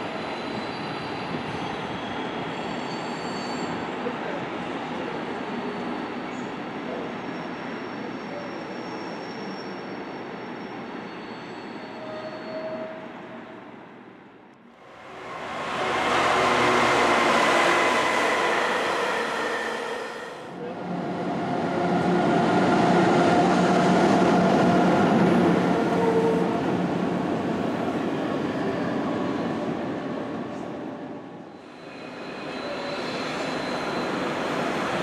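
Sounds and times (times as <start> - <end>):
locomotive hum: 14.8 - 27.5
train wheels rumbling: 14.8 - 27.6
electric train passing: 14.8 - 30.2.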